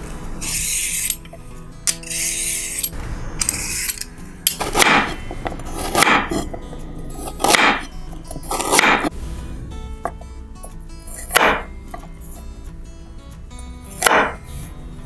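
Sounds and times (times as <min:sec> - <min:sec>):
peeler scraping carrot: 0:00.4 - 0:09.1
knife slicing carrot on wooden board: 0:04.5 - 0:09.1, 0:11.0 - 0:12.4, 0:13.8 - 0:14.6.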